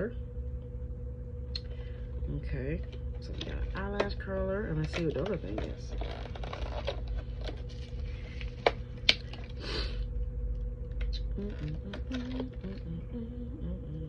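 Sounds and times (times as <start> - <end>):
plastic packaging crinkling: 3.2 - 9.6, 11.0 - 12.9
plastic packaging rustle: 4.8 - 9.6, 11.5 - 12.8.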